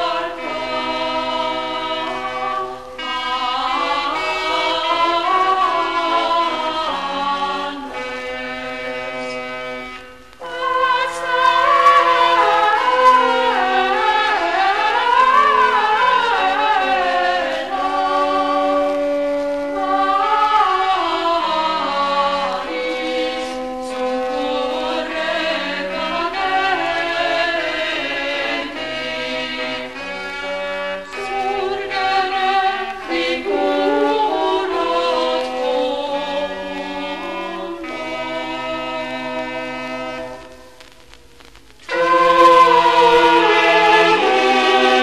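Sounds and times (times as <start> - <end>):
choir singing held notes: 0.0 - 40.8, 41.8 - 45.0
slow stepping bass line: 40.2 - 42.4.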